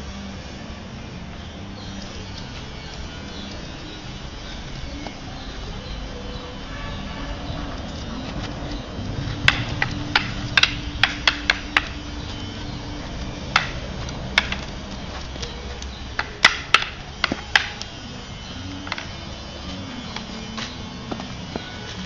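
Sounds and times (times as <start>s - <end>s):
sticks clacking together: 9.4s - 18.1s, 18.8s - 21.6s.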